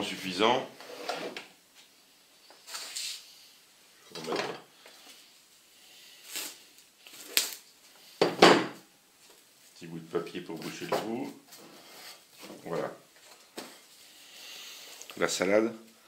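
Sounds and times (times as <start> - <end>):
rustles on a table: 0.8 - 3.3, 10.6 - 14.1.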